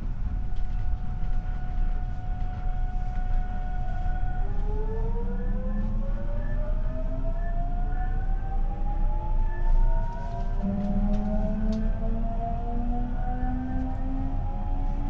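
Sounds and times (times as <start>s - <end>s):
low train rumble: 0.0s - 15.0s
electric train motor whine rising: 4.6s - 15.0s.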